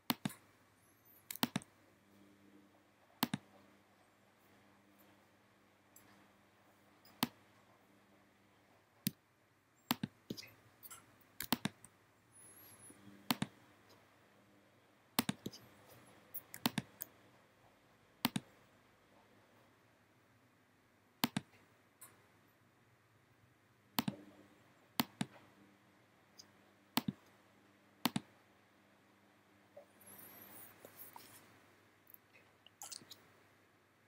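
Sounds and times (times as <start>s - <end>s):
faint low hum: 0.0s - 34.0s
computer mouse clicks: 0.1s - 0.4s, 1.2s - 1.7s, 3.2s - 3.5s, 9.9s - 12.0s, 12.8s - 14.0s, 15.2s - 17.2s, 18.2s - 18.5s, 21.2s - 22.2s, 24.0s - 24.2s, 25.0s - 25.5s, 26.4s - 27.3s, 28.0s - 28.3s.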